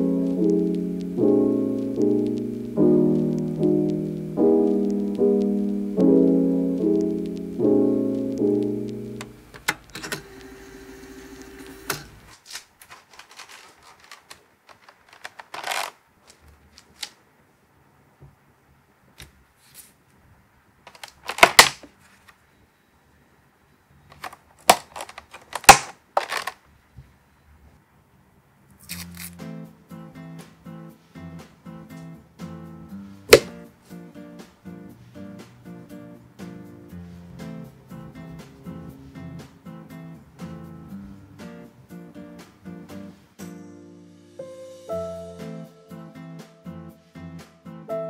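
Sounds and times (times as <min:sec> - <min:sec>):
plastic packaging clicking and crinkling: 0:11.9 - 0:17.2, 0:20.9 - 0:22.4, 0:24.1 - 0:26.6.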